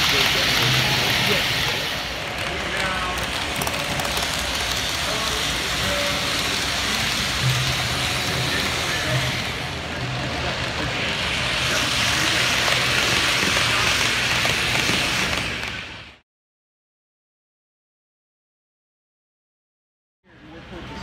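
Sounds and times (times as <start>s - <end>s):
model train wheels rolling: 0.0s - 16.2s.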